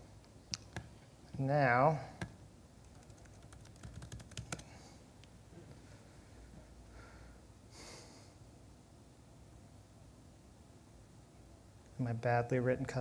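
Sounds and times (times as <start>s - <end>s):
laptop keyboard typing: 0.5s - 0.9s, 2.2s - 4.7s.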